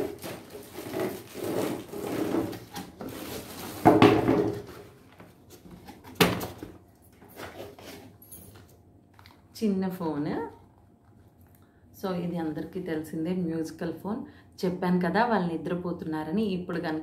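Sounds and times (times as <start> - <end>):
cardboard rubbing and scraping: 0.0 - 4.0.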